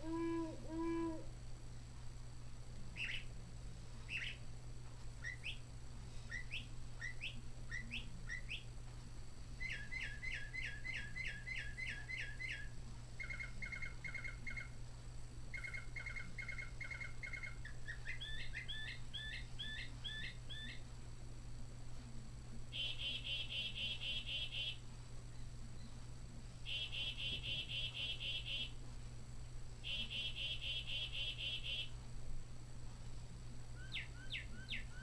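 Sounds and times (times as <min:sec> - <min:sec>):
recorded bird song from speaker: 0:02.9 - 0:03.4, 0:04.0 - 0:04.5, 0:05.2 - 0:08.8, 0:09.6 - 0:14.8, 0:15.5 - 0:20.9, 0:22.7 - 0:28.8, 0:29.8 - 0:32.0, 0:33.8 - 0:35.0.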